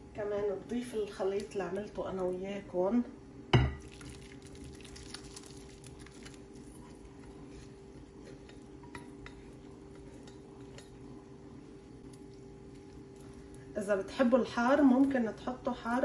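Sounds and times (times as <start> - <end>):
steady low hum: 0.0 - 16.0
spatula scraping a pan: 6.7 - 11.1.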